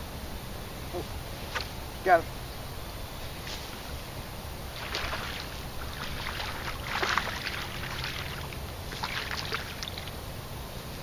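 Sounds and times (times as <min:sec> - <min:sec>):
fish splashing and thrashing: 0:04.7 - 0:10.2.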